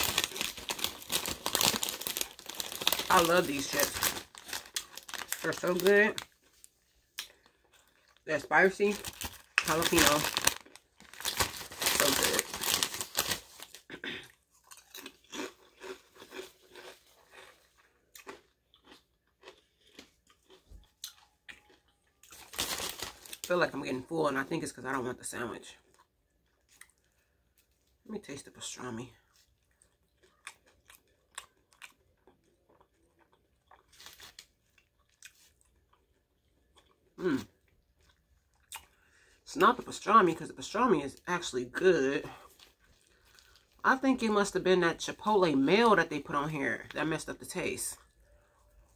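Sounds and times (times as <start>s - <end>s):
person chewing crunchy chips: 0.0s - 23.8s, 25.8s - 27.8s, 28.6s - 39.2s, 42.3s - 43.8s.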